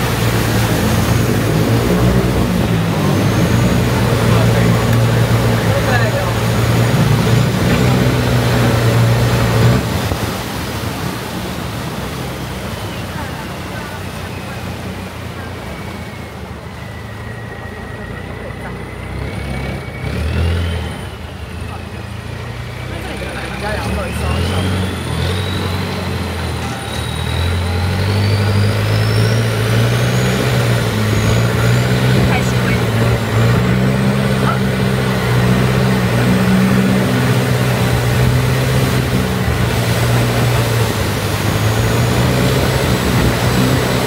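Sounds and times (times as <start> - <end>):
boat engine humming: 0.0 - 44.0.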